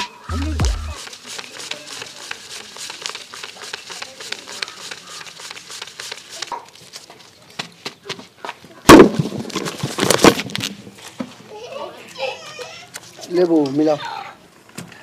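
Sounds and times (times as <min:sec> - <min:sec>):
background music: 0:00.0 - 0:01.0
banknotes rustling and flicking: 0:00.0 - 0:07.5.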